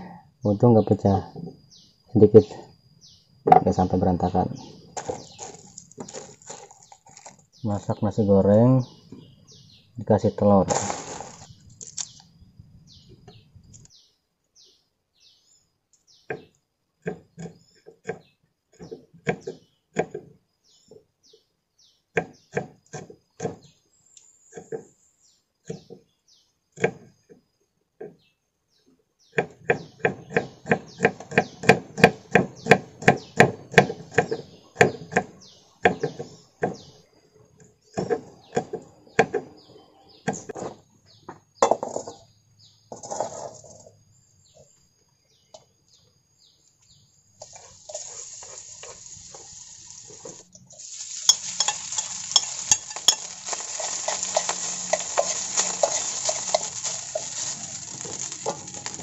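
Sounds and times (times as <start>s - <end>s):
knife chopping on wooden board: 29.4s - 36.8s
frying sizzling in a wok: 47.4s - 59.0s
utensil clinking against pan: 51.2s - 57.5s.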